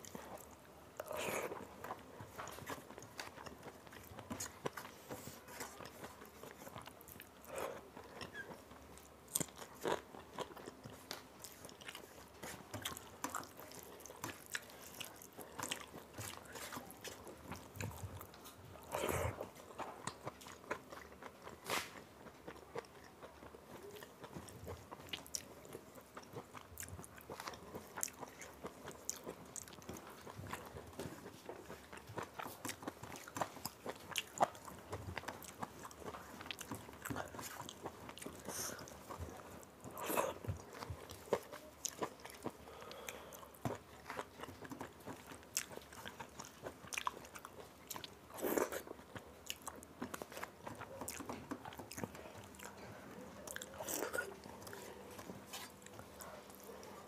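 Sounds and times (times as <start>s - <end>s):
person chewing: 0.0s - 57.0s.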